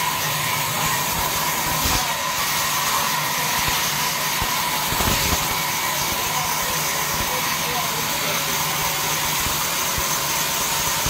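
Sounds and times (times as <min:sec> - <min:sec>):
band saw cutting wood: 0:00.0 - 0:11.0.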